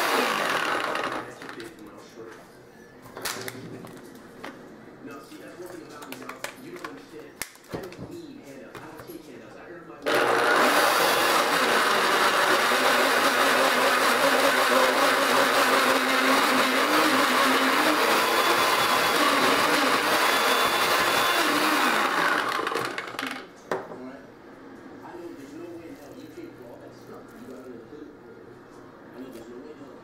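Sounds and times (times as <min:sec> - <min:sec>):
blender chopping: 0:00.0 - 0:01.5, 0:10.0 - 0:23.4.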